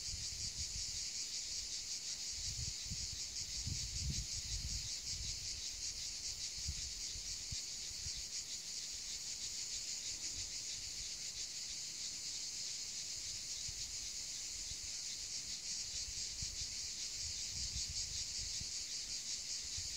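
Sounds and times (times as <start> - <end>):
high-pitched insect chorus: 0.0 - 19.9
low wind rumble on microphone: 2.4 - 5.5.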